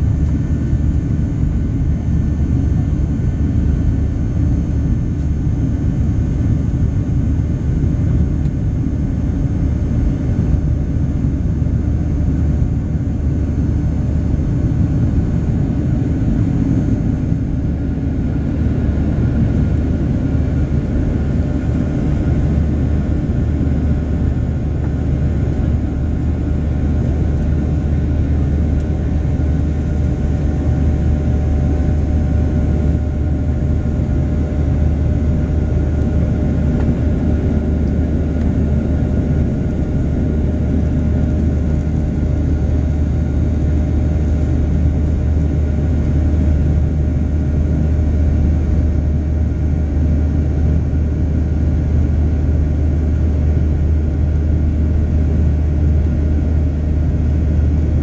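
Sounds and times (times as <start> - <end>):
jet engine drone in cabin: 0.0 - 58.0.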